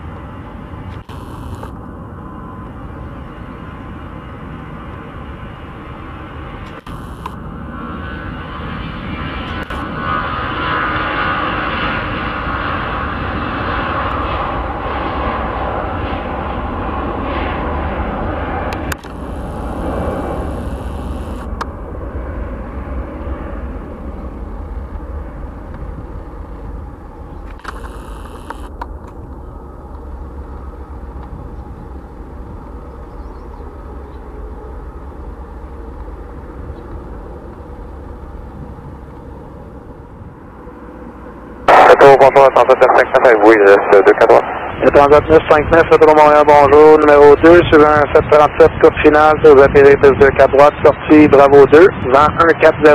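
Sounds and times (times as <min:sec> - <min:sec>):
jet engines rumbling: 0:00.0 - 0:52.9.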